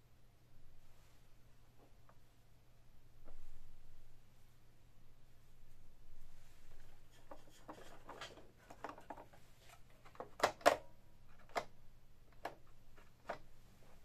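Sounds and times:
hands rustling plastic parts: 6.7 - 11.7.

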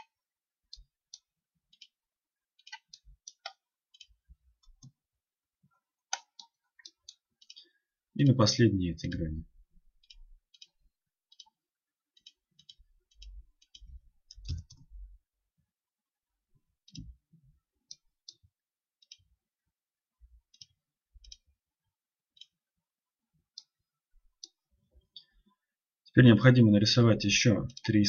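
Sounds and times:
computer mouse clicking: 2.6 - 5.0, 6.0 - 7.7, 10.0 - 11.6, 12.2 - 14.9, 20.5 - 21.4.

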